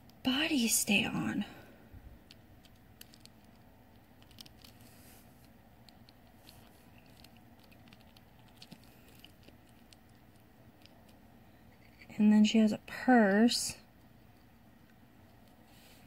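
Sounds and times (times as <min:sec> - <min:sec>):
plastic doll parts clicking: 0:02.2 - 0:04.8, 0:05.4 - 0:11.2.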